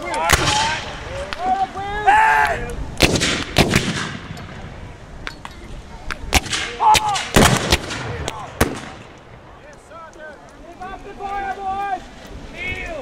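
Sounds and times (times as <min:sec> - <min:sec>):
man shouting: 0:01.4 - 0:02.7
rifle shots: 0:03.0 - 0:04.3, 0:06.3 - 0:09.0.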